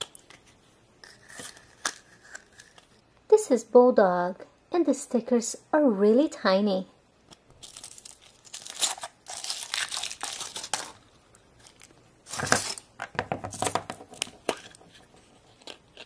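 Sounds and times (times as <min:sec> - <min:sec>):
chocolate egg cracking open: 0:01.0 - 0:03.0
foil wrapper crinkling and tearing: 0:07.6 - 0:12.9.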